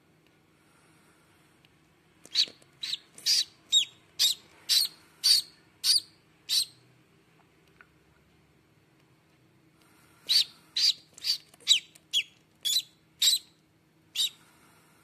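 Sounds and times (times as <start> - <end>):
duckling peeping: 2.3 - 6.8, 10.3 - 14.4.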